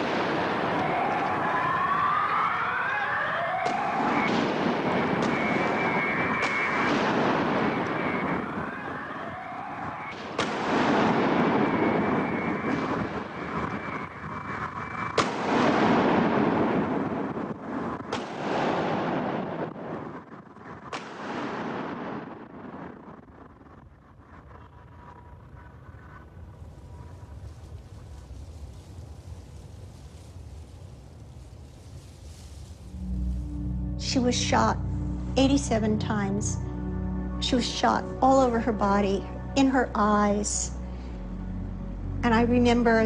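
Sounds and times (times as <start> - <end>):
loud street commotion: 0.0 - 23.0
wailing emergency siren: 0.0 - 27.6
gunshots with echo: 10.1 - 13.0.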